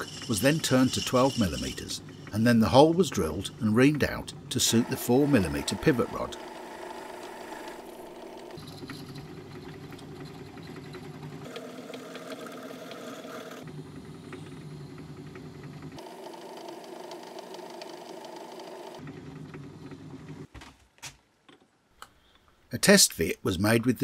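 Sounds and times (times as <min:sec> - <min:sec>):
lathe running: 0:00.0 - 0:03.6, 0:04.6 - 0:19.0
drill boring into metal bar: 0:04.6 - 0:08.6.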